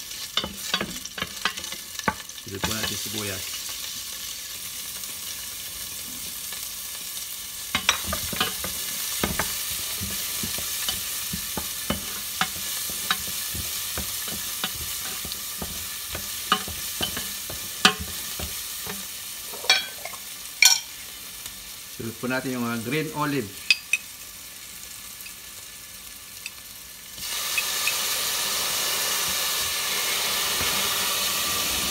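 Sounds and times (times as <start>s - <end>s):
onion sizzling in oil: 0.0s - 31.9s
spoon tapping metal pot: 7.8s - 19.0s, 19.6s - 20.9s.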